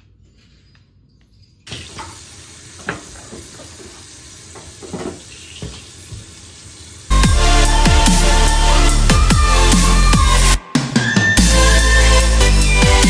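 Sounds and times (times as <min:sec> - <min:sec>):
tap water running into sink: 0:01.7 - 0:07.1.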